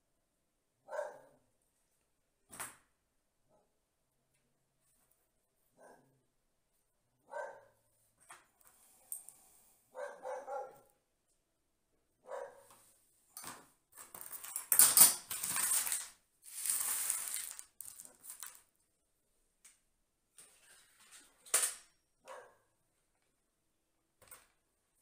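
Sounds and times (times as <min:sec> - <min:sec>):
dog barking: 0:00.8 - 0:01.5, 0:05.7 - 0:06.2, 0:07.2 - 0:07.8, 0:09.9 - 0:11.0, 0:12.2 - 0:12.7, 0:22.2 - 0:22.7.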